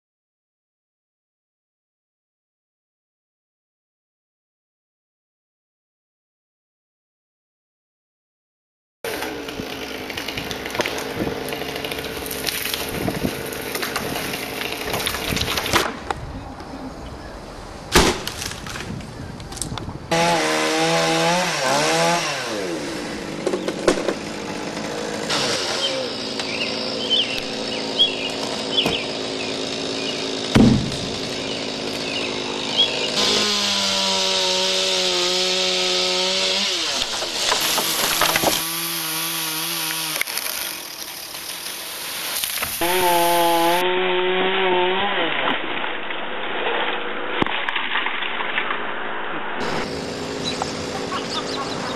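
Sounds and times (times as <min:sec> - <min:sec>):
chainsaw revving and cutting: 0:09.1 - 0:15.8, 0:20.1 - 0:45.7, 0:49.6 - 0:51.9
sharp knocks: 0:30.5 - 0:31.1.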